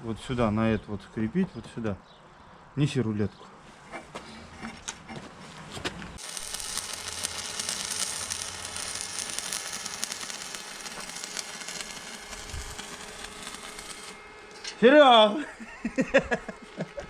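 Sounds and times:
welding arc crackling sizzle: 6.1s - 17.0s.

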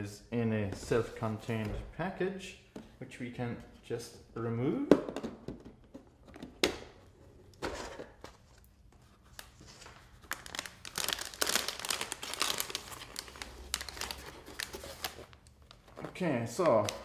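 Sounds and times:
plastic packaging crinkling: 9.3s - 17.0s.

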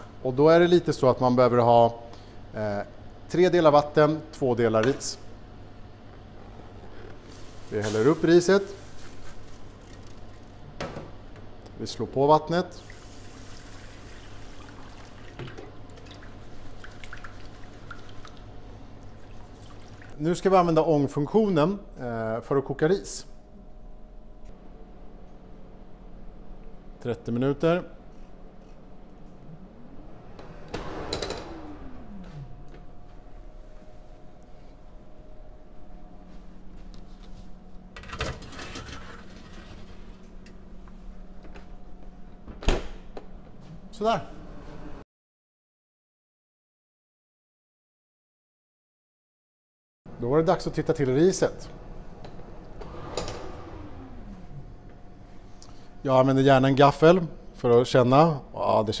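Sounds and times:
steady machine hum: 0.0s - 45.0s, 50.1s - 59.0s
water dripping: 16.0s - 18.4s.

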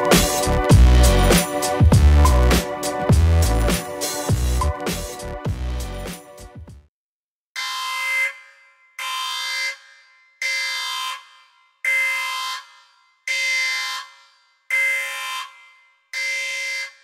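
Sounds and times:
electronic alarm blasts: 7.6s - 17.0s.

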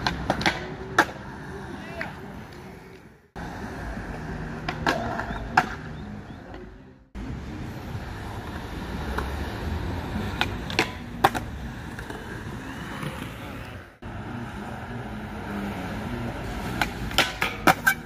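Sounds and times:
skateboard clacking on ground: 0.0s - 3.2s, 4.1s - 6.8s, 10.2s - 13.8s, 16.5s - 18.0s
skateboard wheels rolling on concrete: 0.0s - 18.0s.

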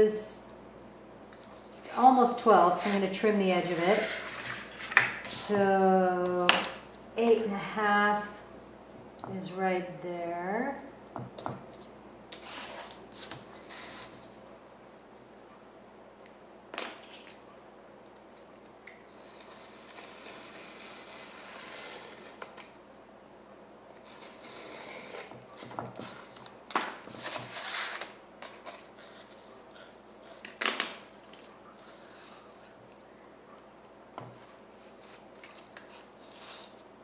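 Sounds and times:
knife scraping paper along ruler: 2.8s - 5.6s, 19.1s - 22.5s, 24.0s - 25.4s, 34.4s - 36.8s.

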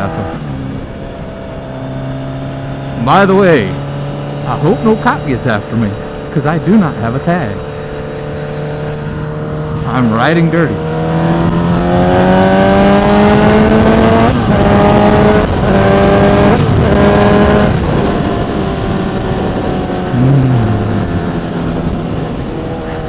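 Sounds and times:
motorcycle engine accelerating: 0.0s - 23.0s
wind noise on microphone: 10.8s - 23.0s.

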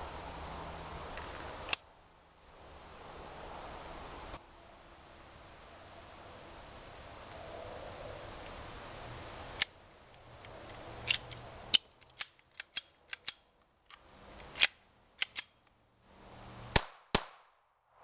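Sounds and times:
pistol slide clicks and clacks: 11.0s - 15.8s.

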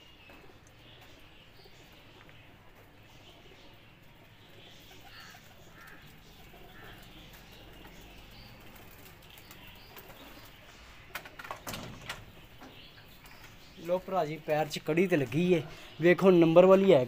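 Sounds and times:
faint pigeon calls: 0.0s - 16.9s
wings flapping and clattering: 5.0s - 12.3s.

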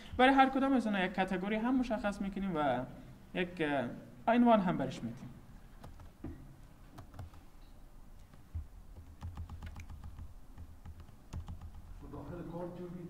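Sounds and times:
keyboard key clicks: 9.1s - 11.8s.

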